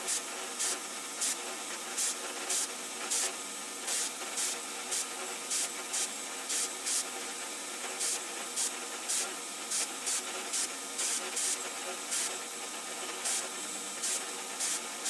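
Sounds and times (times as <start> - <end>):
compressed air blasts: 8.0 - 12.4, 13.2 - 15.0.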